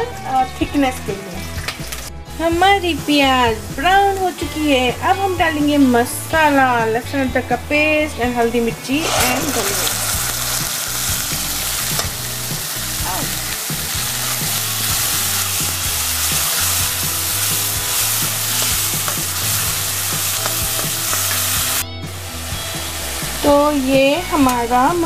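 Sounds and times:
spices sizzling in hot oil: 0:01.3 - 0:06.8, 0:08.6 - 0:25.0
metal ladle scraping: 0:08.9 - 0:10.9.

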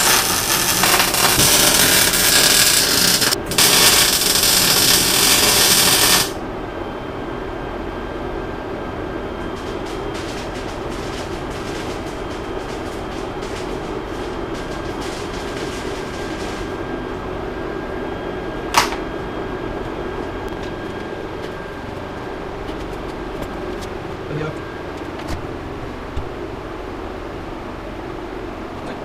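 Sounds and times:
welding arc crackling: 0:00.0 - 0:06.4, 0:09.4 - 0:17.2
steady hum: 0:00.0 - 0:29.0.

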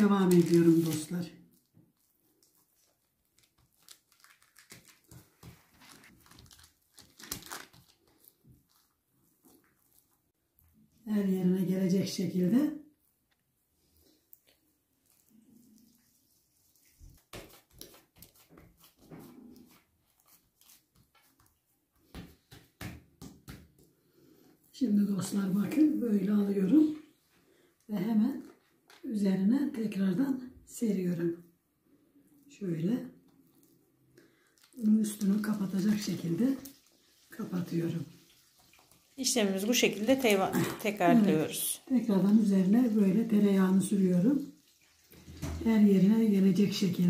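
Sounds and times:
paper rustling: 0:00.0 - 0:01.3, 0:01.9 - 0:10.2, 0:16.3 - 0:22.8
hands patting and rubbing dough: 0:00.0 - 0:10.4, 0:14.4 - 0:24.1
hands slapping dough on countertop: 0:17.1 - 0:19.4, 0:20.5 - 0:24.0.

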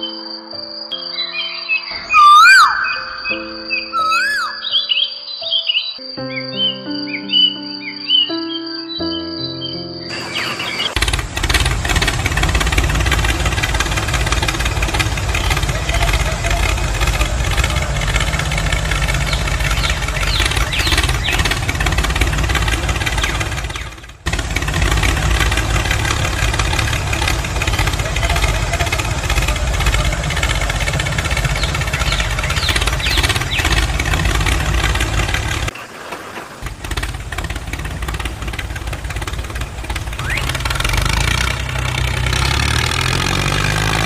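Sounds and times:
tractor engine running: 0:10.1 - 0:44.0.

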